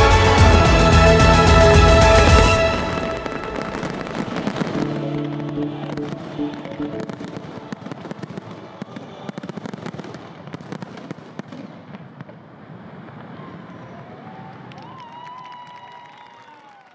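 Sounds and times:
background music: 0.0s - 8.5s
fireworks crackling: 0.0s - 14.9s.

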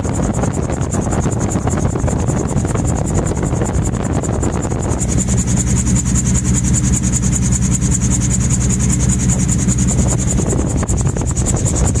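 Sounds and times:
rotor pulsing: 0.0s - 12.0s
engine droning at idle: 2.5s - 12.0s.

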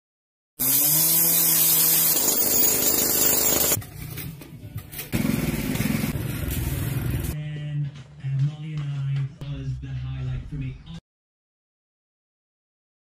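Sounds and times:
power tool running: 0.6s - 3.8s, 5.2s - 6.2s.

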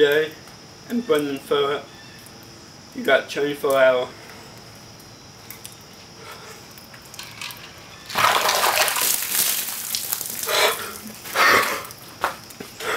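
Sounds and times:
water splashing gush: 7.1s - 12.0s.

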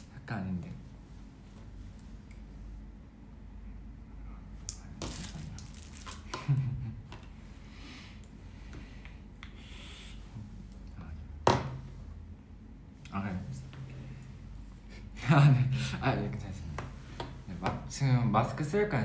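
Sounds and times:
rustling and handling objects: 5.0s - 7.4s.

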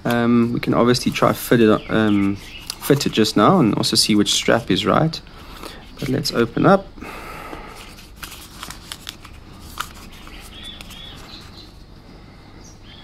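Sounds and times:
packaging rustling: 0.7s - 4.7s, 7.7s - 11.9s.

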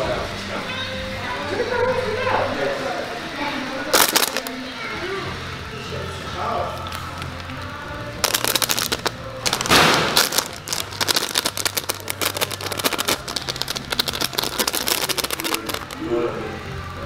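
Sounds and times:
fabric tunnel crackling: 8.2s - 16.0s.

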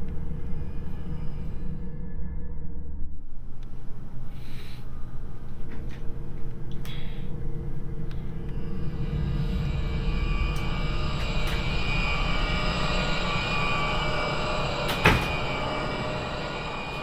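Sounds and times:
low rumbling drone: 0.0s - 17.0s
faint high tones: 8.4s - 17.0s.

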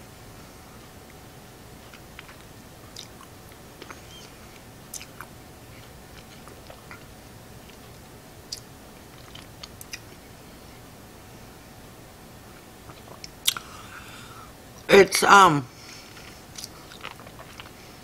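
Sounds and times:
low room hum: 0.0s - 18.0s
wet mouth clicks and smacks: 4.9s - 5.3s, 8.5s - 10.1s, 13.0s - 13.7s, 16.5s - 17.7s.

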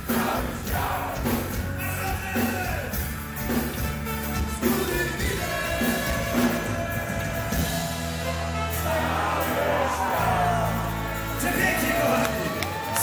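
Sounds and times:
live rock band playing: 0.0s - 13.0s
man singing: 4.6s - 8.0s.

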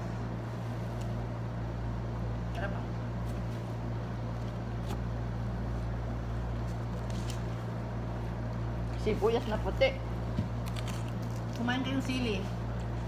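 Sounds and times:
air conditioner humming: 0.0s - 13.0s.

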